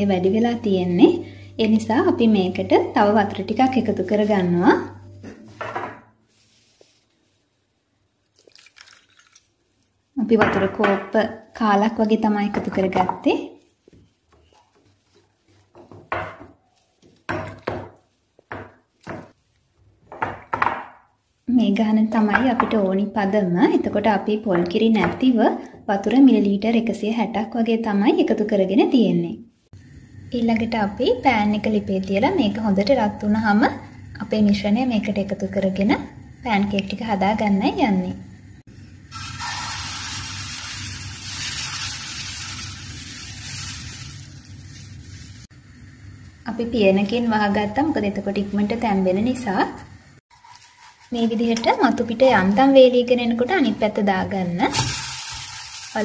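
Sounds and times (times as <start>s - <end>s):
batter sizzling in frying pan: 38.5s - 47.8s, 54.7s - 56.0s.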